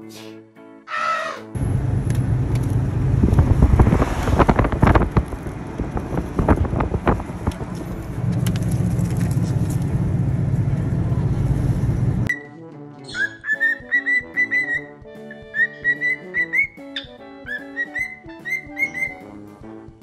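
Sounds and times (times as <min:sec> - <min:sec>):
road noise rumble: 0:01.6 - 0:12.3
wind rushing through car window: 0:01.6 - 0:12.3.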